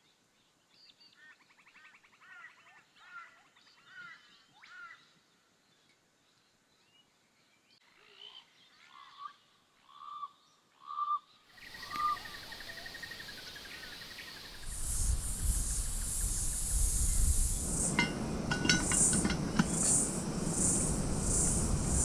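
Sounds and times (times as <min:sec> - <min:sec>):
faint bird chirps: 0:00.0 - 0:18.0
outdoor hiss: 0:11.6 - 0:22.0
low rumble: 0:14.6 - 0:22.0.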